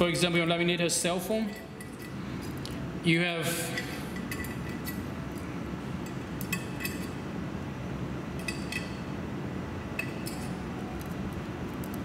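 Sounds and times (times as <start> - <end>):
steady low hum: 0.0 - 12.0
metal springs and pins clinking: 1.3 - 2.8, 3.7 - 7.2, 8.4 - 9.1, 9.9 - 11.2.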